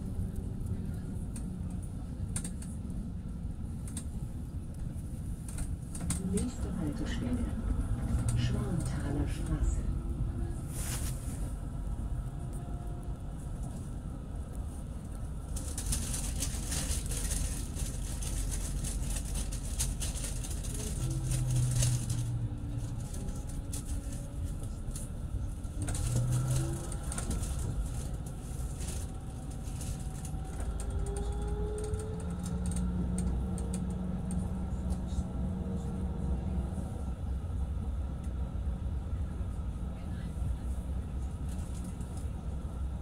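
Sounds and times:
tram rumbling on rails: 0.0s - 43.0s.

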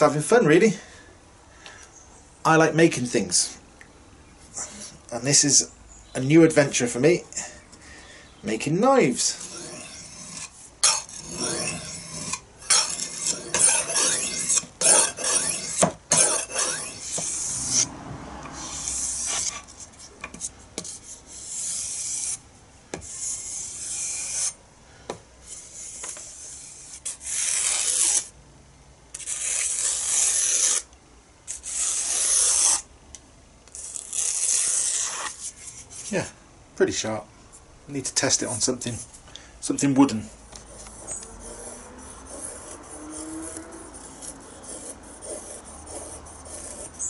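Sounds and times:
knife scraping on sharpening stone: 9.1s - 17.9s, 23.0s - 24.6s, 29.2s - 30.9s, 31.5s - 32.8s, 40.8s - 47.0s
knife slicing paper: 27.0s - 28.3s.

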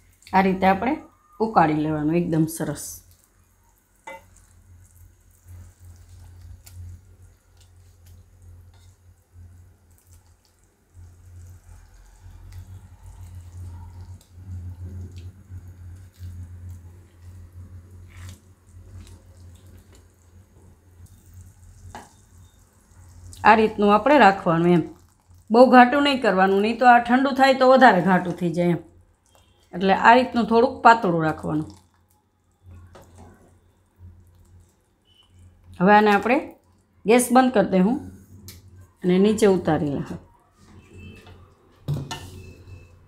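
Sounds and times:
syrup bubbles popping: 3.0s - 36.9s.

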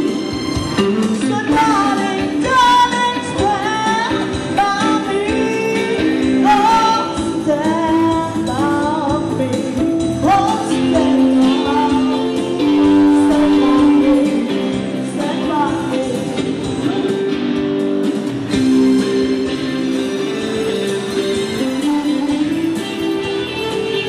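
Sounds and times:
electric guitar chords: 0.0s - 24.0s
keyboard chords: 0.0s - 24.0s
woman singing: 1.2s - 17.2s, 21.6s - 24.0s.

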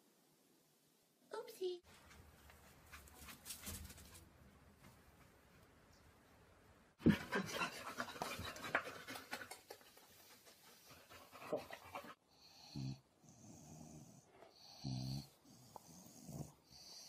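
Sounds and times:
dog panting: 7.0s - 12.2s.

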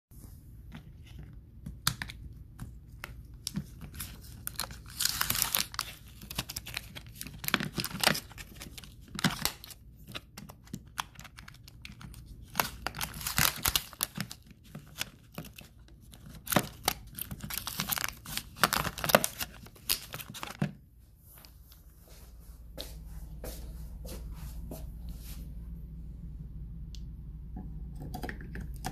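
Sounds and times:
plastic tearing and crinkling: 3.0s - 20.8s.

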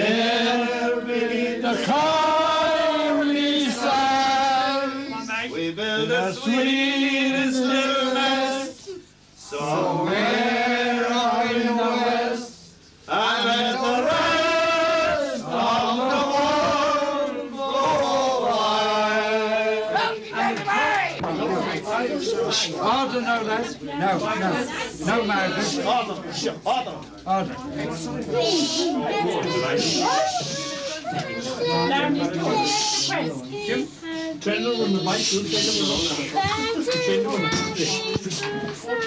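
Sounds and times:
man singing unaccompanied: 0.0s - 8.8s.

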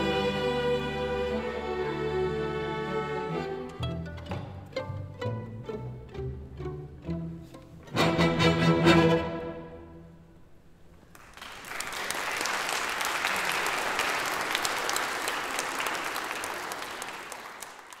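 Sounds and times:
string orchestra chord: 0.0s - 10.1s
audience applause: 11.1s - 18.0s.

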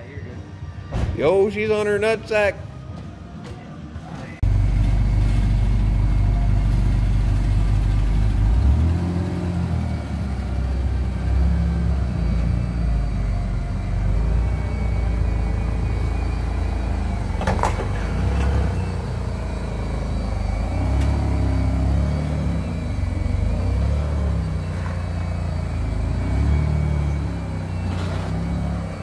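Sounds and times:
car engine running: 4.4s - 29.0s.

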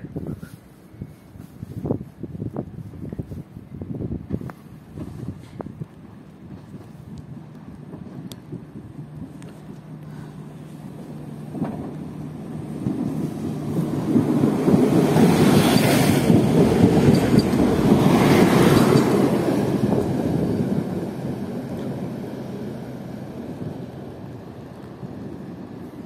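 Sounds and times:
train passing close by: 0.0s - 26.0s.

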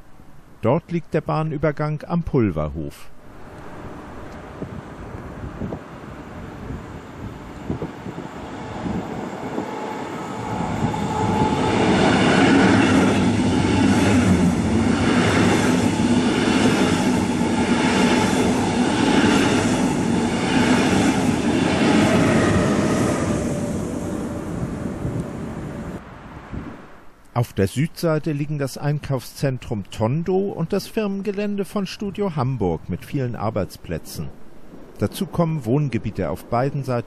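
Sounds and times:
train wheels rolling on rails: 3.4s - 26.0s.

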